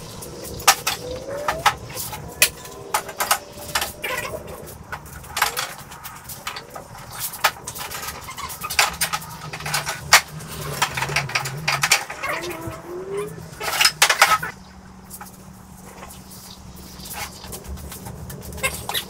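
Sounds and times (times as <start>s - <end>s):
clicks and knocks of clamps: 7.4s - 12.3s.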